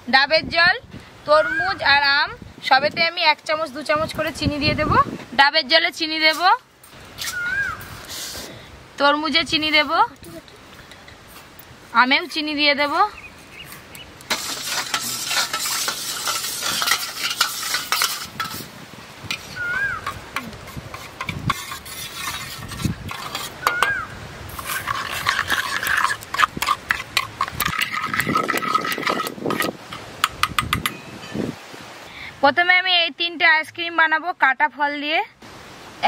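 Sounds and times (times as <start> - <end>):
spoon scraping steel bowl: 14.3 - 31.0.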